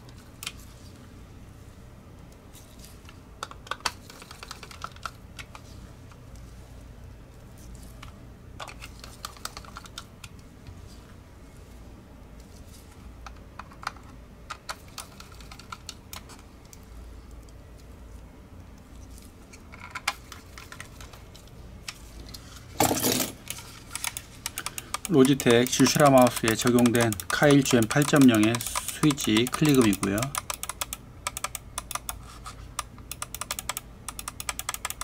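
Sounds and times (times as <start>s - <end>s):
plastic shell being handled: 23.4s - 30.3s
screwdriver clicking on plastic: 23.4s - 32.2s, 32.8s - 35.0s.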